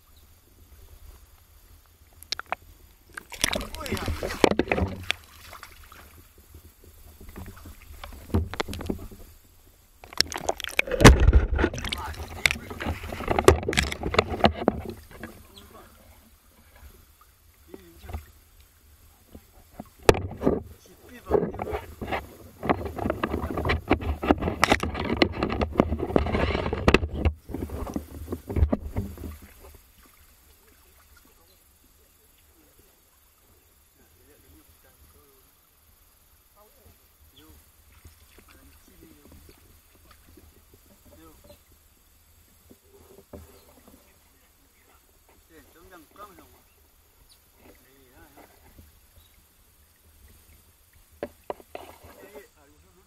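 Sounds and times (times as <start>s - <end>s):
grass and leaves rustling: 0.0s - 53.0s
water sloshing and splashing: 2.1s - 32.4s, 37.8s - 41.6s, 42.4s - 52.6s
sharp knocks and scrapes: 2.3s - 9.3s, 10.0s - 15.9s, 19.2s - 29.8s, 42.6s - 44.1s, 47.5s - 49.0s, 51.2s - 52.5s.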